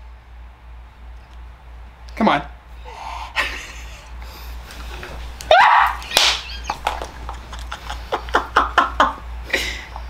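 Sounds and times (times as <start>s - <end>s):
woman squealing: 5.5s - 6.8s.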